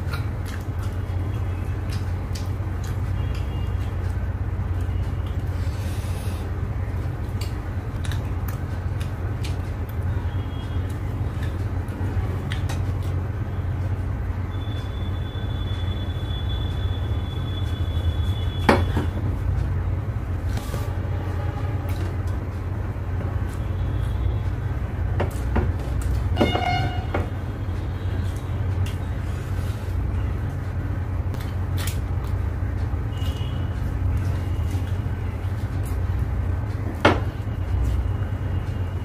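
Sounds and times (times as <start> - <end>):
chewing: 0.0 - 3.7
steady low hum: 0.0 - 39.0.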